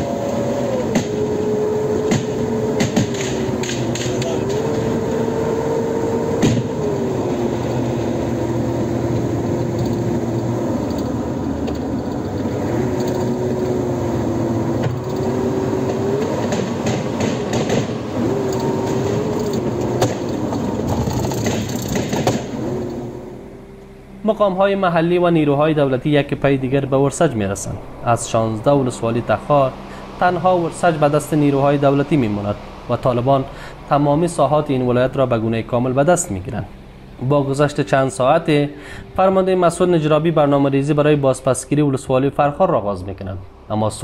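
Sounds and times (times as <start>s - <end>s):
vehicle engine under load: 0.0s - 42.8s
rattling and knocks: 2.0s - 4.9s, 15.8s - 22.6s.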